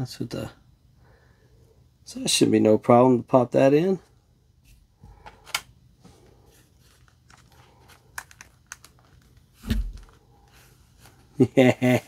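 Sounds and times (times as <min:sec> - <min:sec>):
plastic bump: 0:09.6 - 0:10.2.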